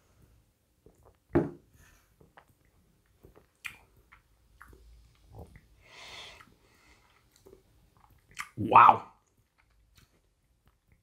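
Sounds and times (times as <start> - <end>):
thump: 1.3 - 1.6
lip smacks and tongue clicks: 3.5 - 5.7, 6.4 - 8.6
soft breath out: 5.8 - 7.2.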